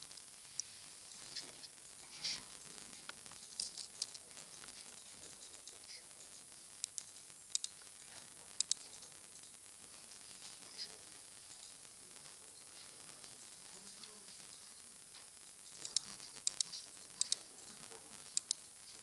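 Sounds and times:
steady hiss: 0.0 - 19.0
mouse clicks: 6.8 - 7.8, 8.6 - 8.8, 15.9 - 17.4, 18.3 - 18.6.

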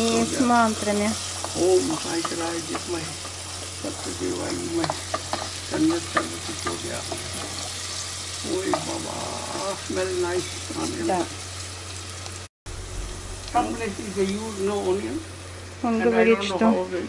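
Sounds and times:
onion sizzling in hot oil: 0.0 - 17.0.

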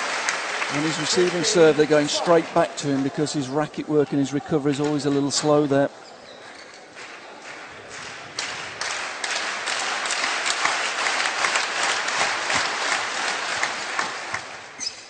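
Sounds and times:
crowd applauding: 0.0 - 5.2, 6.5 - 14.8.

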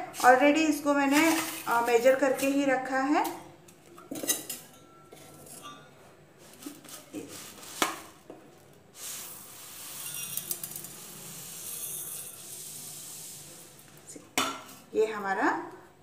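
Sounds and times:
steel bowls and plates clinking: 1.2 - 7.4, 9.7 - 12.6
rice pouring into steel bowl: 8.9 - 13.8.

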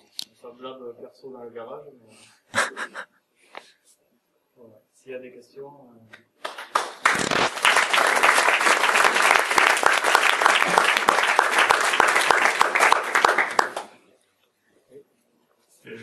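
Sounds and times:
audience applauding: 6.4 - 14.0.

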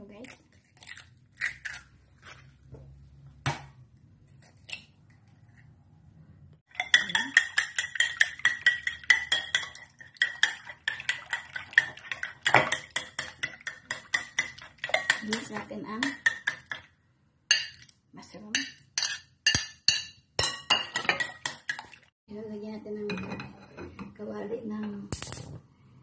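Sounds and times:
utensil clinking on ceramic bowl: 6.7 - 16.9, 17.5 - 17.9, 18.5 - 22.0.

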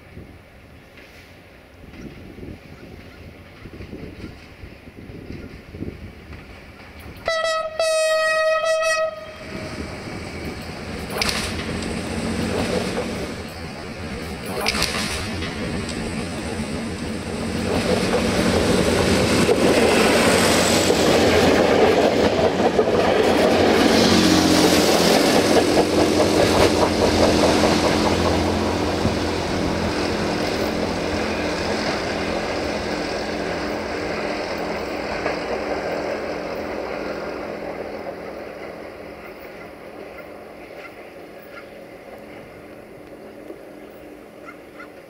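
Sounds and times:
train diesel engine running: 0.0 - 45.0
wheels on rails: 9.8 - 45.0
clatter over rail joints: 10.4 - 24.0.

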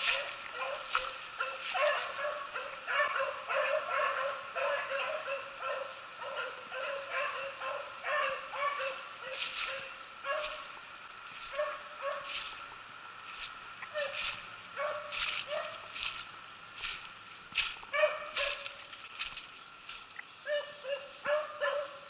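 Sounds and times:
hounds baying: 0.0 - 12.6, 13.8 - 16.0, 17.9 - 18.9, 20.4 - 22.0.

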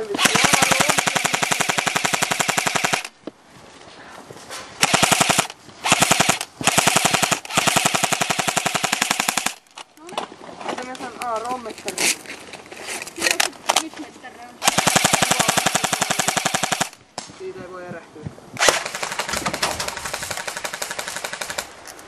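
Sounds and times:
airsoft rifle firing bursts: 0.2 - 3.1, 4.8 - 9.6, 14.6 - 17.0, 18.6 - 21.7.

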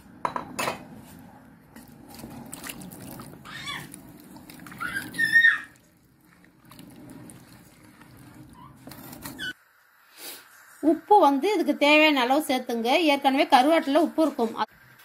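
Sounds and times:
spatula stirring thick curry: 1.7 - 9.6.

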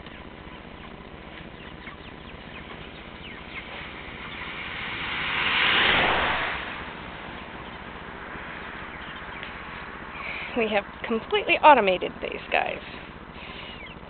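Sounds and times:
chickens chirping faintly: 0.0 - 5.4, 13.0 - 14.0
rushing noise: 2.4 - 10.6.

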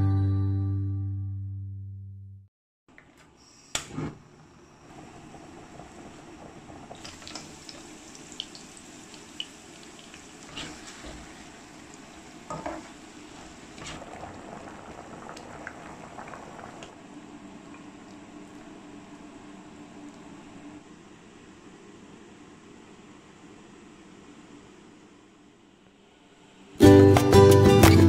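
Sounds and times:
food cooking hiss: 4.5 - 17.0.

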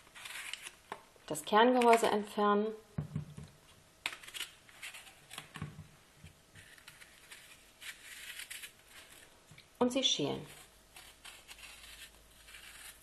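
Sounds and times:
apple being cut: 6.6 - 9.3, 10.4 - 13.0.

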